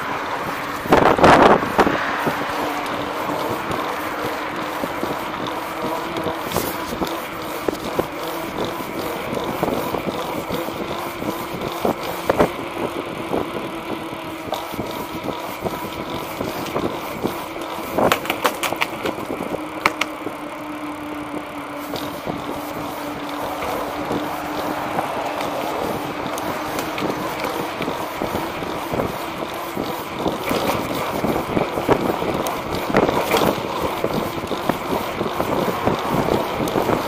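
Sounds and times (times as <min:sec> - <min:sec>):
tyre clicking over pavement joints: 0:00.0 - 0:37.0
tyre rolling on concrete: 0:00.5 - 0:12.8, 0:21.7 - 0:37.0.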